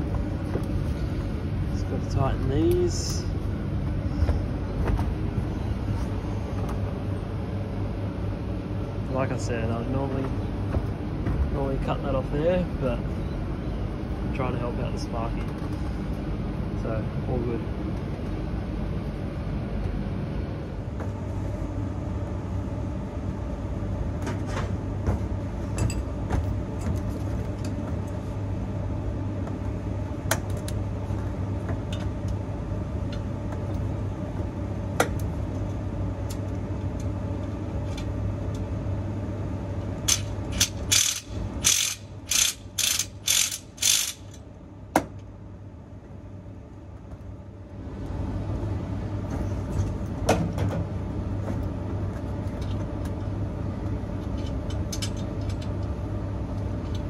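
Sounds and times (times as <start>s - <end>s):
steady low hum: 0.0s - 57.0s
quick ratcheting strokes: 40.1s - 44.4s
ratchet spanner clicking: 40.1s - 44.4s.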